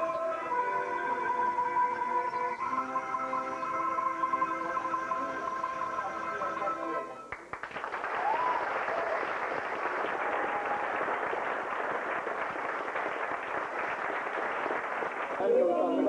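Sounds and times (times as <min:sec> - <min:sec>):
handbell and accordion music: 0:00.0 - 0:07.3
audience applauding: 0:07.2 - 0:16.0.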